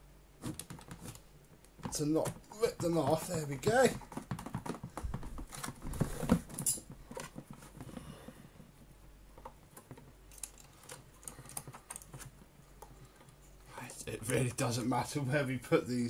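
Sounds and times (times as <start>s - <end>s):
hands handling wire ends clicking: 9.4s - 13.4s.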